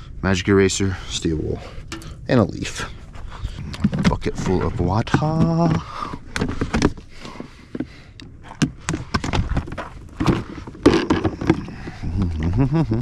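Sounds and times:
tools clattering in plastic bucket: 3.8 - 7.9, 8.9 - 11.9.

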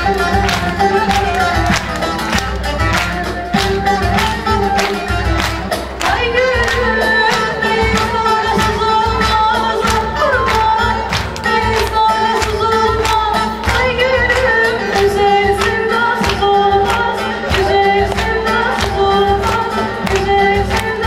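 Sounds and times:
small band playing: 0.0 - 21.0
woman singing: 3.6 - 21.0.

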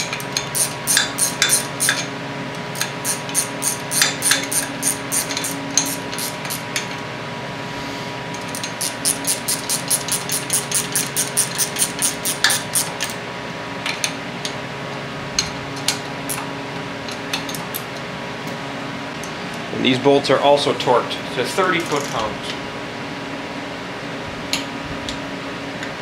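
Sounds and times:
wrench ratcheting clicks: 0.4 - 2.0, 2.8 - 6.6, 8.6 - 13.1.

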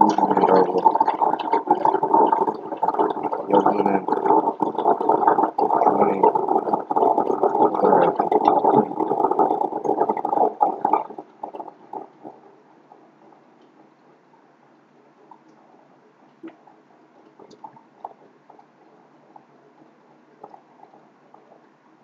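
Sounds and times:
muffled garbled voice: 0.0 - 11.0.

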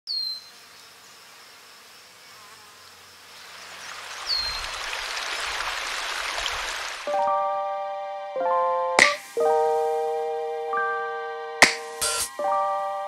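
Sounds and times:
high insect buzz: 0.1 - 6.2, 9.1 - 13.0
stream water rushing: 3.4 - 7.3.

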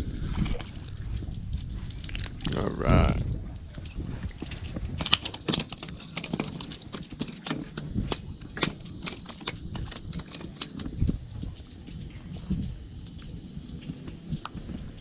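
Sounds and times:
fish flopping on concrete: 4.1 - 11.8.

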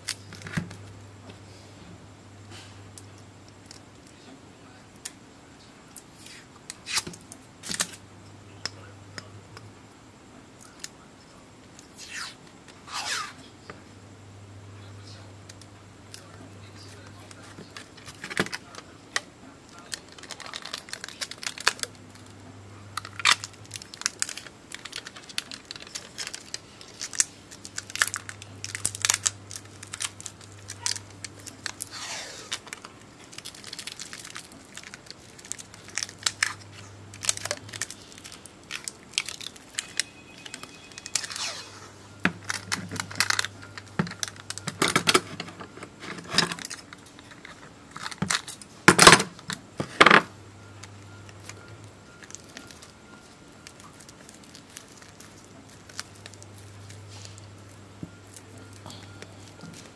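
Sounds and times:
adhesive tape crinkling and tearing: 6.0 - 8.0, 15.5 - 22.3, 23.0 - 48.7, 50.8 - 58.8.

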